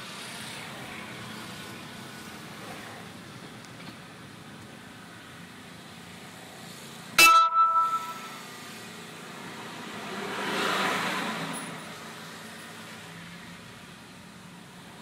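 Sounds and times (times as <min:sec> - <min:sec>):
car road and engine noise: 0:00.0 - 0:15.0
sharp ringing knock: 0:07.2 - 0:08.4.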